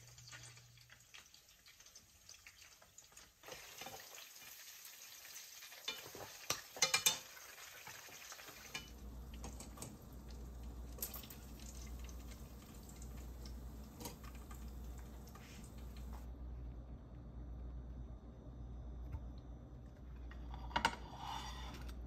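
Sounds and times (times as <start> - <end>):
utensils clinking against dishes: 5.9 - 7.3
steady low hum: 8.8 - 22.0.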